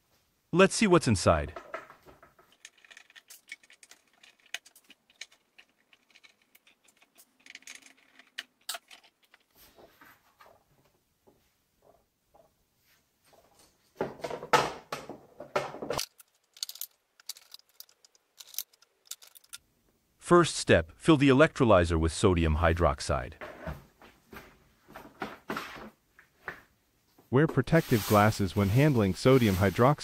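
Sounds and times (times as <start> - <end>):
handling noise: 1.5 - 11.0, 13.3 - 19.6.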